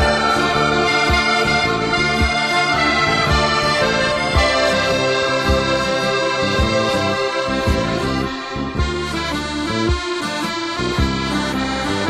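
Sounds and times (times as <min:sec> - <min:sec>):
low beat: 0:00.0 - 0:12.0
sustained chords: 0:00.0 - 0:12.0.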